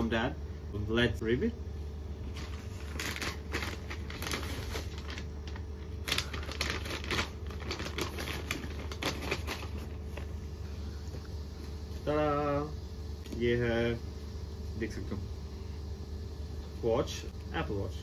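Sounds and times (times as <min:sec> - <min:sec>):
steady low hum: 0:00.0 - 0:18.0
paper bag rustling: 0:02.2 - 0:10.4.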